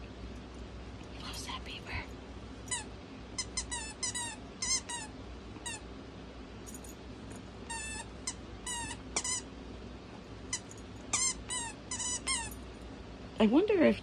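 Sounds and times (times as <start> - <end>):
dog toy squeaking: 2.7 - 5.8, 7.7 - 9.5, 10.5 - 12.6.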